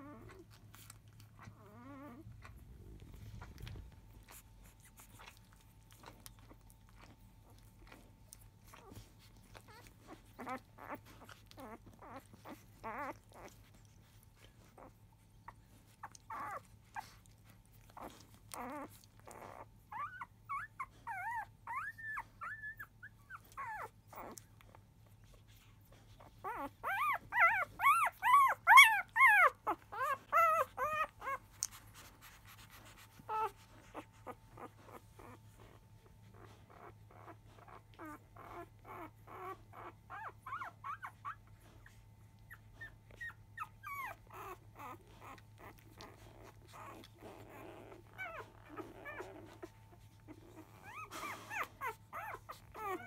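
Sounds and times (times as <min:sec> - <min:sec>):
puppies squeaking and whimpering: 0:00.0 - 0:53.0
puppy squealing in distress: 0:16.0 - 0:17.2, 0:26.2 - 0:35.6, 0:36.4 - 0:41.5, 0:42.6 - 0:53.0.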